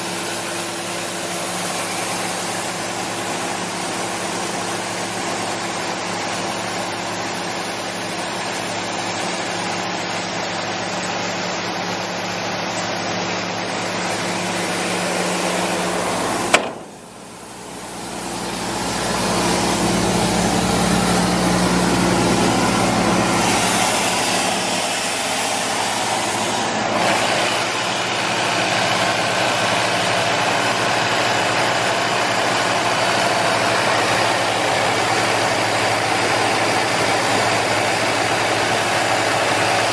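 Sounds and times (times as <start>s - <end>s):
air compressor diesel engine running: 0.0s - 39.9s
sharp click: 16.5s - 17.0s.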